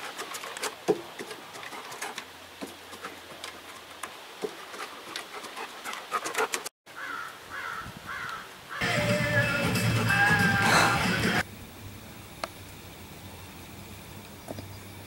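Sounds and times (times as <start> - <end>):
dog claws clicking on wooden boards: 0.0 - 6.7.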